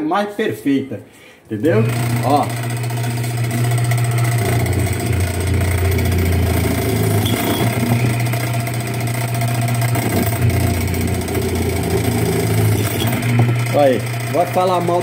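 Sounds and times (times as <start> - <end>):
drill press humming: 1.6 - 15.0.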